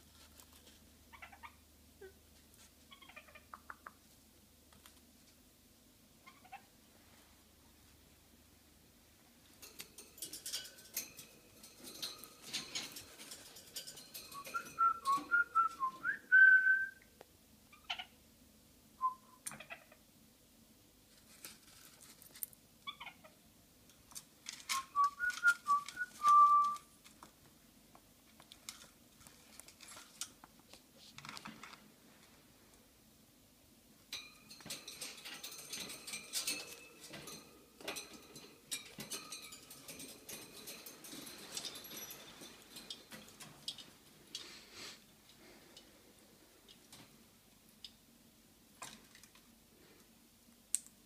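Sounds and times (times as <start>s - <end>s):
rustling and scratching: 0.0s - 1.5s, 2.2s - 3.5s, 9.4s - 16.0s, 21.0s - 22.6s, 28.2s - 32.5s, 34.1s - 45.8s.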